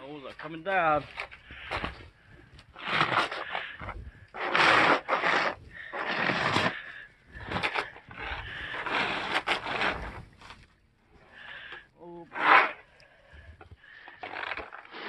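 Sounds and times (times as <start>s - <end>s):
snow sliding off roof: 0.0s - 15.0s
snow rake scraping snow: 0.3s - 2.0s, 2.7s - 10.3s, 12.3s - 12.9s, 13.8s - 15.0s.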